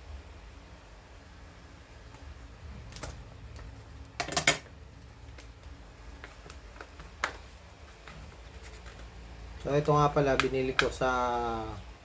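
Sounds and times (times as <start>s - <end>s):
cardboard packaging clicks and knocks: 5.3s - 9.2s.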